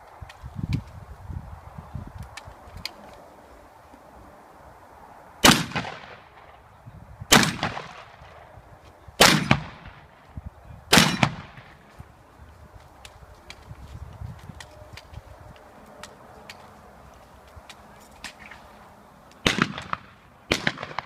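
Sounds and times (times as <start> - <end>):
shotgun shots: 5.4 - 6.6, 7.3 - 8.4, 9.2 - 10.1, 10.9 - 11.8, 19.4 - 21.0.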